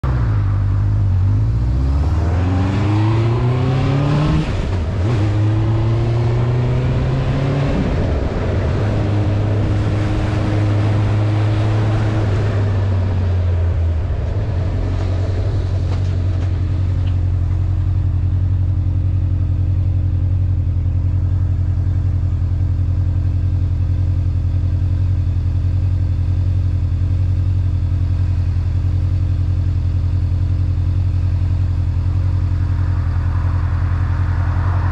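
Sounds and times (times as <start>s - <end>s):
wind rushing over microphone: 2.1s - 17.2s, 32.8s - 34.9s.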